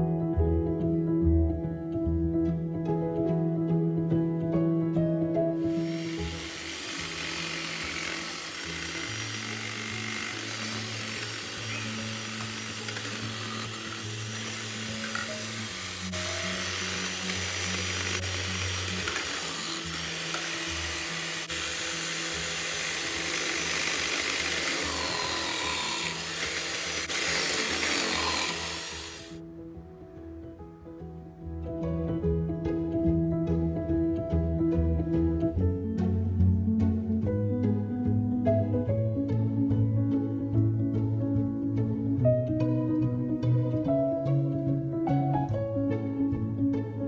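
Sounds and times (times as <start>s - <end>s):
background music: 0.0s - 47.0s
food processor grating potatoes: 5.6s - 29.4s.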